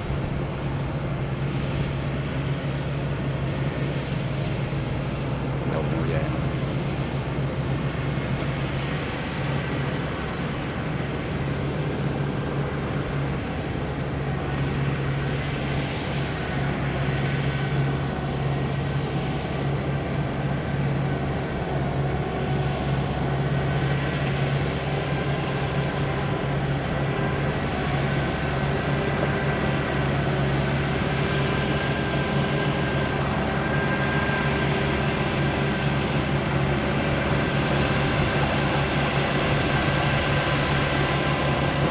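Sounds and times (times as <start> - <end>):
diesel engine running under load: 0.0 - 41.9.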